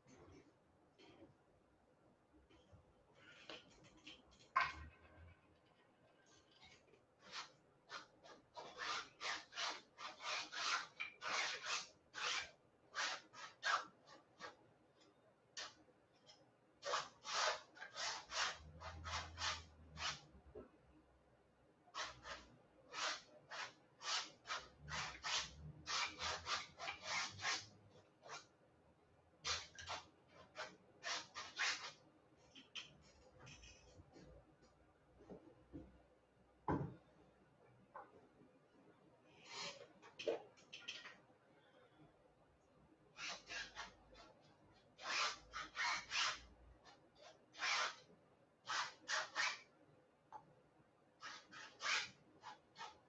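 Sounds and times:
palette knife scraping canvas: 6.3 - 14.6, 15.6 - 20.4, 21.9 - 28.5, 29.4 - 34.1, 39.4 - 40.1, 43.2 - 49.7, 51.2 - 53.0.

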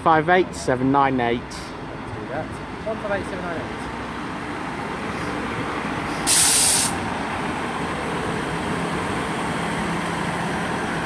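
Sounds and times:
train engine rumbling: 1.4 - 11.0
air brake hiss: 6.1 - 7.0.

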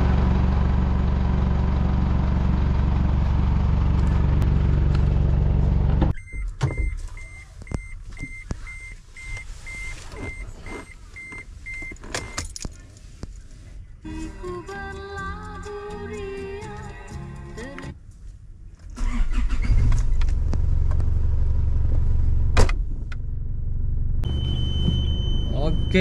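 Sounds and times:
pickup truck engine idling: 0.0 - 6.0
car warning chime beeping: 6.1 - 12.5, 24.2 - 26.0.

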